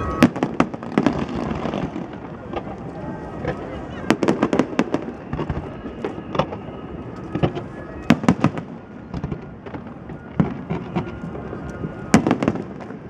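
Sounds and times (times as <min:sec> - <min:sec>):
fireworks bursting with bangs: 0:00.0 - 0:13.0.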